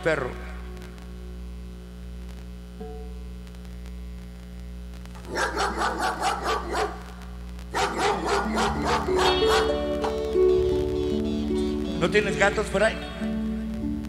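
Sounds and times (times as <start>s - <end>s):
mains hum: 0.0s - 14.0s
recorded dog barking: 5.2s - 10.2s.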